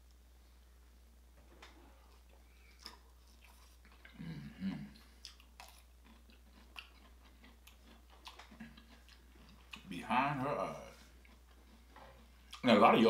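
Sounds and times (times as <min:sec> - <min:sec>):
person chewing food: 0:01.6 - 0:12.7.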